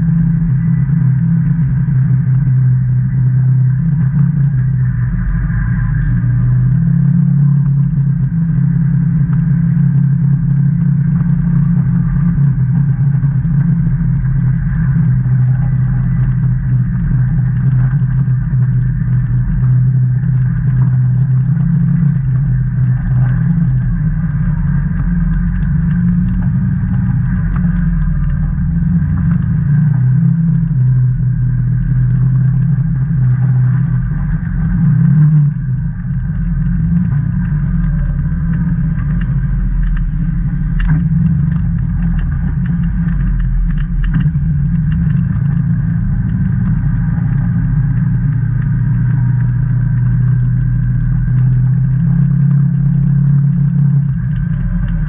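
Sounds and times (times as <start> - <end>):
side-by-side engine running: 0.0 - 55.0.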